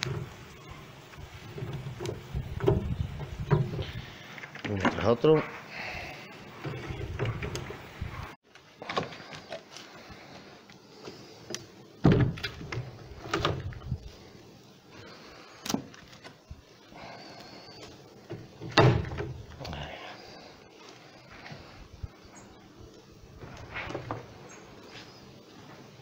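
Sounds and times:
wooden frames clunking on metal: 1.1 - 5.2, 6.5 - 8.3, 18.2 - 19.5.

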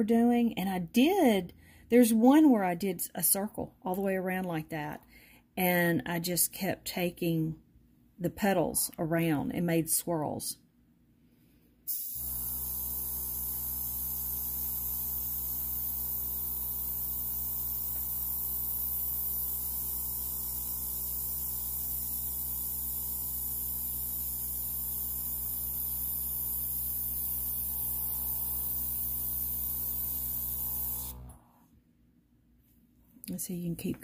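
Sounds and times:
airbrush air hissing: 11.9 - 31.3
air compressor humming: 11.9 - 31.6.

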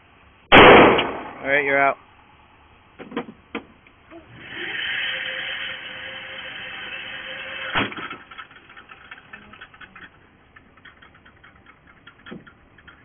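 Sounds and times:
sharp bang: 0.5 - 1.6.

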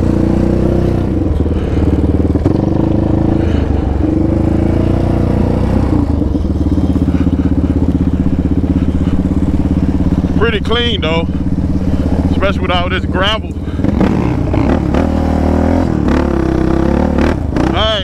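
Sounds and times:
quad engine putter: 0.0 - 18.0.

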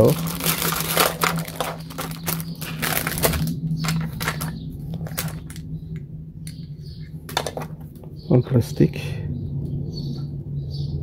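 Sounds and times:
plastic pieces clicking: 0.0 - 5.6
plastic bag crinkling: 0.0 - 5.7
steady low hum: 0.0 - 11.0.

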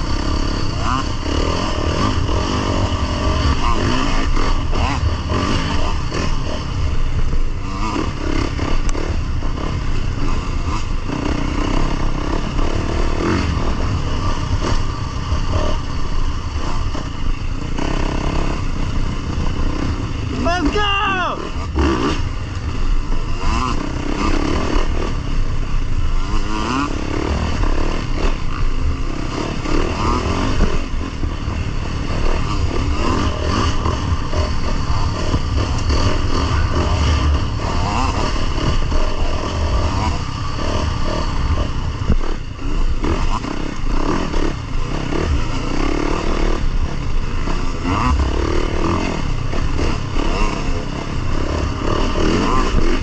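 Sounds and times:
dirt bike engine revving: 0.0 - 53.0
wind rumble on microphone: 21.6 - 53.0.

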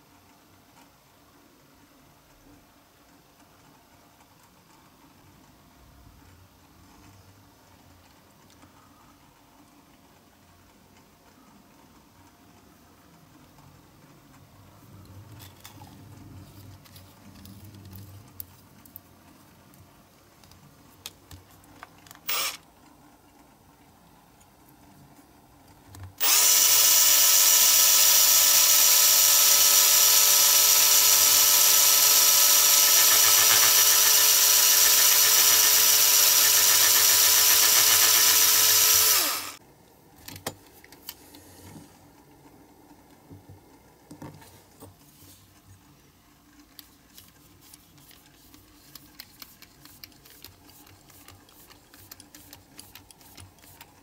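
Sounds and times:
cordless drill whining: 22.3 - 22.6, 26.2 - 39.6.

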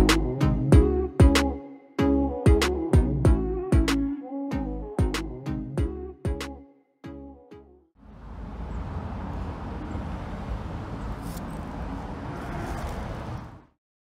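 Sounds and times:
music: 0.0 - 7.9.

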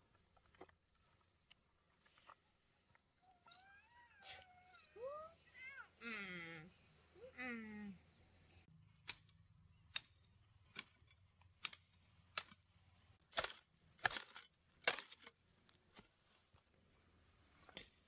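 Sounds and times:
hand hoe chopping into earth: 13.2 - 16.1.

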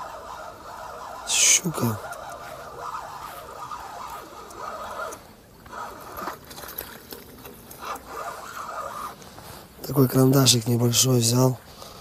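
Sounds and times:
reel click: 0.0 - 9.4
fishing reel gear whirring: 0.0 - 10.5.

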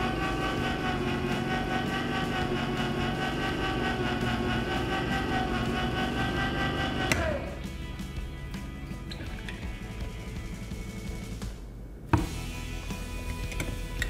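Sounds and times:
electric can opener motor: 0.0 - 8.2.

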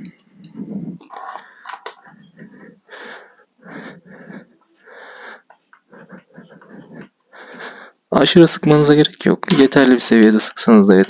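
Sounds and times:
noisy breathing: 0.3 - 8.1.

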